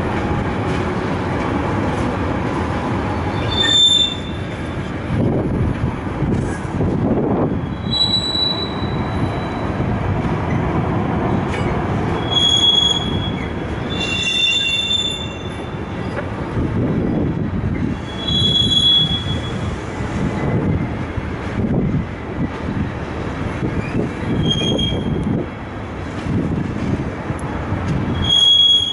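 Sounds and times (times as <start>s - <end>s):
freight train rolling past: 0.0s - 28.9s
train wheels squealing: 3.1s - 4.6s, 7.6s - 9.8s, 11.6s - 16.2s, 17.8s - 19.8s, 23.8s - 25.2s, 28.1s - 28.9s.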